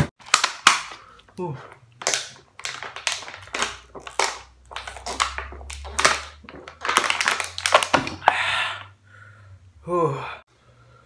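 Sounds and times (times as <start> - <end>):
plastic bottle crackling: 0.0 - 8.4
person gulping water: 2.8 - 8.4.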